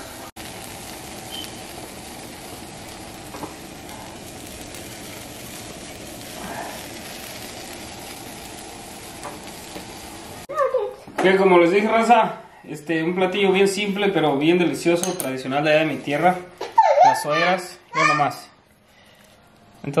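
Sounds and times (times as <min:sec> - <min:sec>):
tortillas sizzling on a hot griddle: 0:00.0 - 0:10.5.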